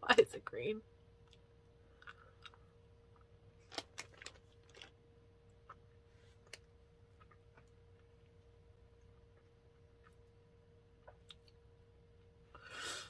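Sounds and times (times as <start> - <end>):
person chewing candy: 1.2 - 10.4.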